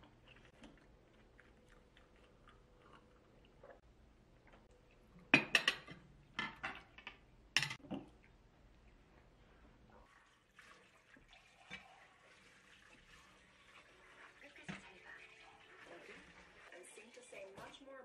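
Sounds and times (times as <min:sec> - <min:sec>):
dishes and cutlery clinking: 0:05.2 - 0:08.1
tap water running: 0:09.2 - 0:18.0.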